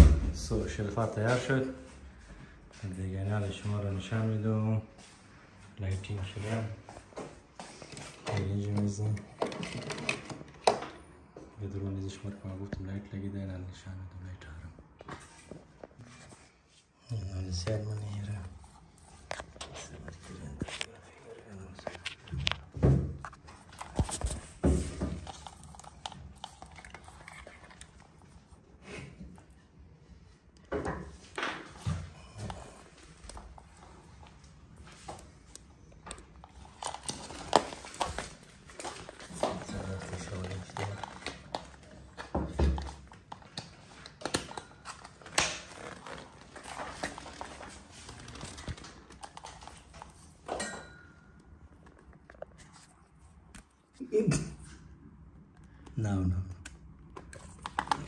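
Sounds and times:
cable handling clicks and rustling: 0:07.6 - 0:11.0, 0:17.6 - 0:29.6, 0:32.4 - 0:50.7, 0:56.6 - 0:58.0.

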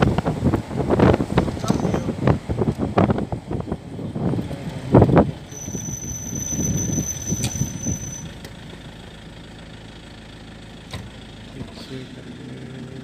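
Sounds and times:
wind gusts on microphone: 0:00.0 - 0:08.2
steady low rumble: 0:00.0 - 0:12.8
vehicle road and wind noise: 0:00.0 - 0:13.0
thin high whine: 0:05.5 - 0:08.4.

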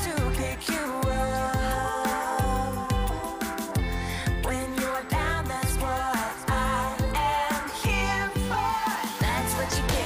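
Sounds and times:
pop song with singing: 0:00.0 - 0:10.0
kick drum beat: 0:09.2 - 0:10.0.

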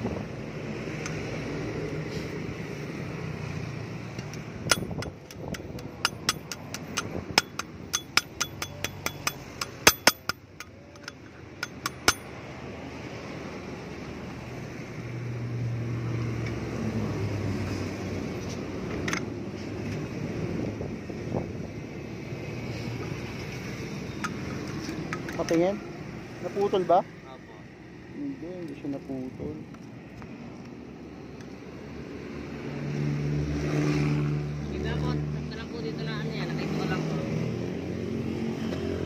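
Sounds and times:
pliers clicking on metal nut: 0:04.2 - 0:12.3.

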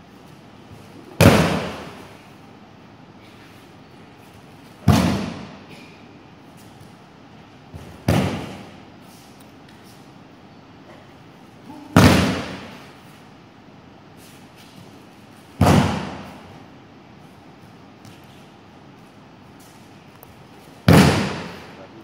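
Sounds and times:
body slapping practice mats: 0:00.8 - 0:02.2, 0:04.4 - 0:05.7, 0:07.7 - 0:08.8, 0:11.7 - 0:13.0, 0:14.5 - 0:16.6, 0:20.6 - 0:21.8.

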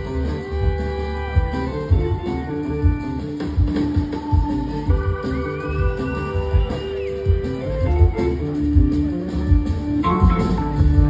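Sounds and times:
bass guitar: 0:00.0 - 0:11.0
electric guitar solo: 0:00.0 - 0:11.0.

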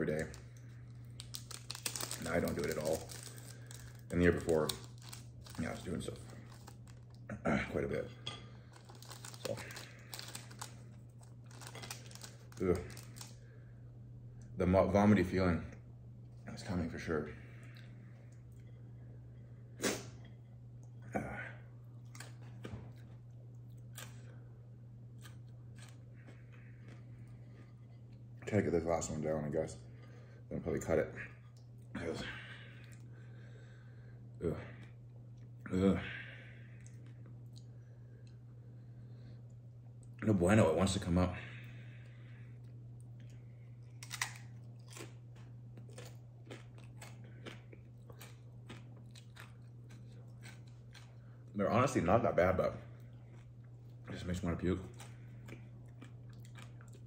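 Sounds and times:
chip crunching: 0:00.0 - 0:07.3, 0:08.6 - 0:13.5, 0:25.2 - 0:28.2, 0:43.2 - 0:52.0, 0:53.0 - 0:57.0
steady low hum: 0:00.0 - 0:57.0.

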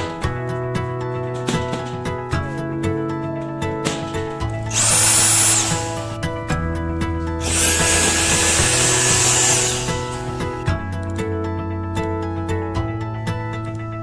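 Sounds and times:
background music: 0:00.0 - 0:14.0
vacuum suction tool whining: 0:04.7 - 0:06.2, 0:07.4 - 0:10.6.

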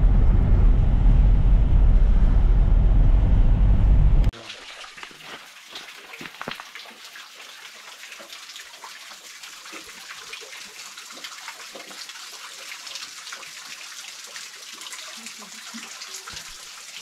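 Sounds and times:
stream water trickling and splashing: 0:04.3 - 0:17.0.

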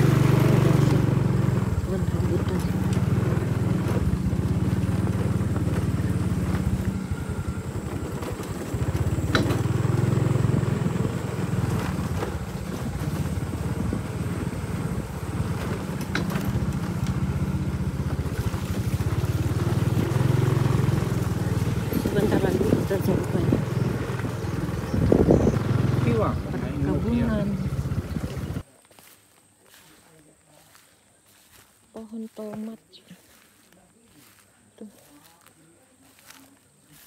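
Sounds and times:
motorbike engine on dirt track: 0:00.0 - 0:37.0.

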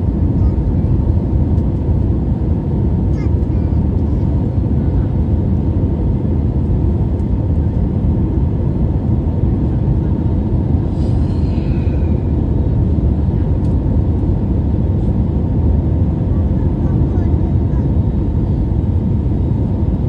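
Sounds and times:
jet engine cabin roar: 0:00.0 - 0:20.0.

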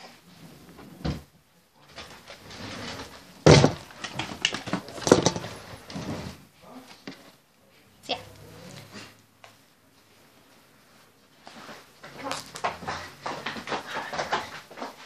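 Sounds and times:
knocks and thuds: 0:03.4 - 0:05.4.

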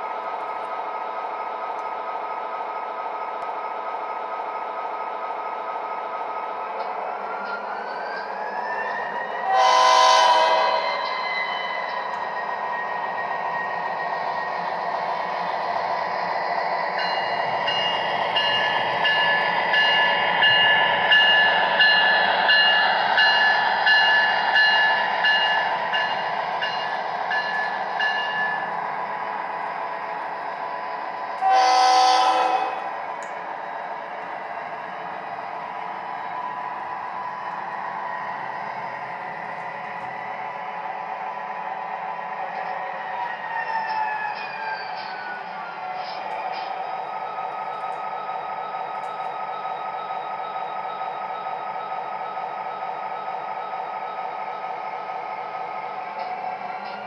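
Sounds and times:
model train running on track: 0:00.0 - 0:57.0
locomotive bell ringing: 0:17.0 - 0:28.8.

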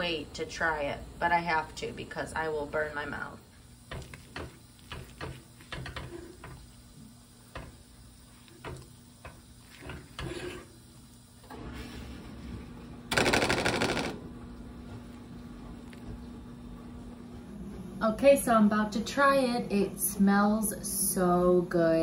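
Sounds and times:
spoon scraping ceramic dish: 0:09.9 - 0:10.7.

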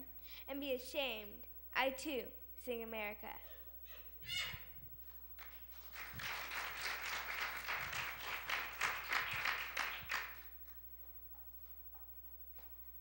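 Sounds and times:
audience applauding: 0:05.4 - 0:10.8.

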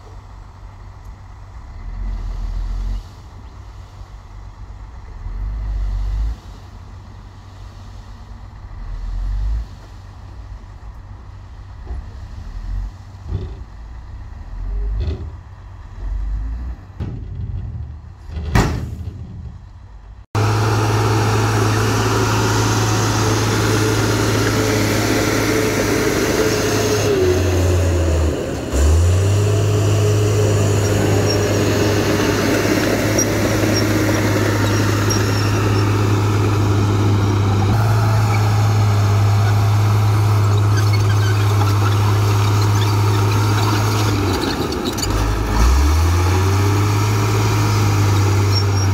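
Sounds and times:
bulldozer diesel engine under load: 0:00.0 - 0:48.9
knocks and clatter: 0:17.0 - 0:19.7.

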